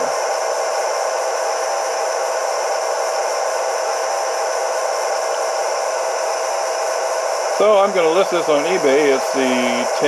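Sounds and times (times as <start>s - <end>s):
mid-pitched hum from small speaker: 0.0s - 10.0s
steady hiss: 7.5s - 10.0s.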